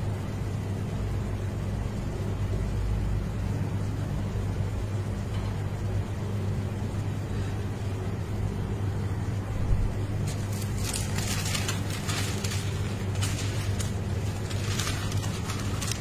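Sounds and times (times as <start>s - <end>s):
low electrical hum: 0.0s - 16.0s
rustling handling noises: 10.1s - 16.0s.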